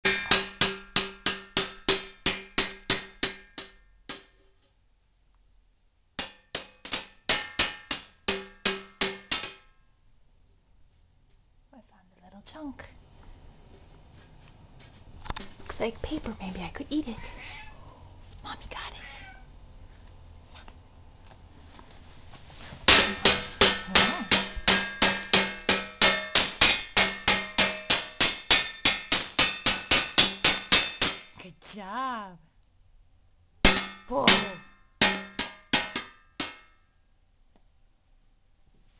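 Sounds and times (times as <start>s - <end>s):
drumstick striking metal pan: 0.0s - 4.5s, 6.2s - 9.7s, 22.9s - 31.4s, 33.6s - 36.8s.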